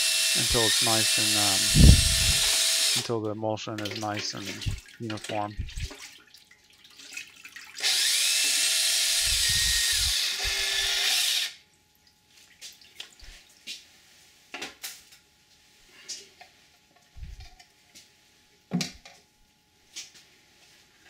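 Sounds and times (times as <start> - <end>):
power drill mixing liquid in bucket: 0.0 - 3.2, 7.8 - 11.6.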